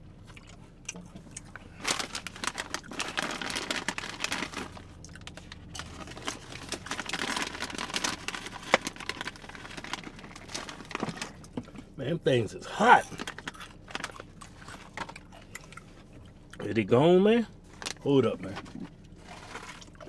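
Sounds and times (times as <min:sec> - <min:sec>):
chip bag crinkling: 0:01.7 - 0:11.5, 0:13.0 - 0:15.2, 0:17.7 - 0:20.0.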